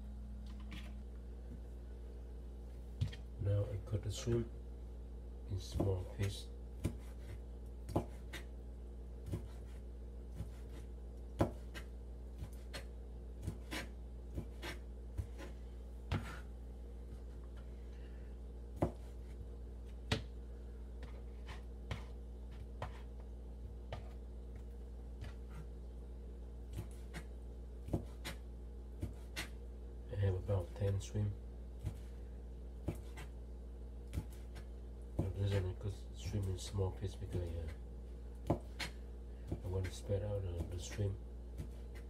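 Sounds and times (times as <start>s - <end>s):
low hum: 0.0s - 7.9s
knife chopping on plastic board: 5.6s - 8.5s, 9.2s - 9.8s, 10.4s - 16.5s, 18.8s - 20.4s, 21.0s - 23.1s, 23.9s - 24.2s, 26.7s - 28.4s, 29.0s - 29.6s, 31.8s - 32.1s, 32.8s - 33.3s, 34.1s - 35.7s, 38.4s - 42.0s.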